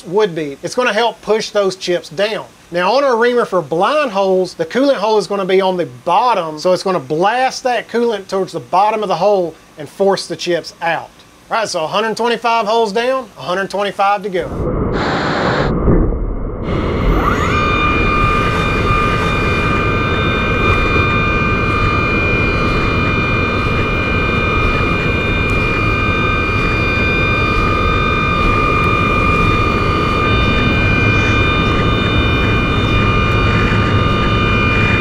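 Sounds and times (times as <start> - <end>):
mill spindle whine: 14.4 - 35.0.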